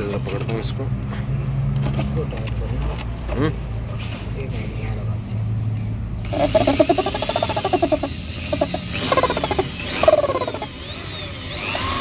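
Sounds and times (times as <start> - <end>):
electric drill whining: 6.2 - 12.0
drill bit chattering in plastic: 6.3 - 12.0.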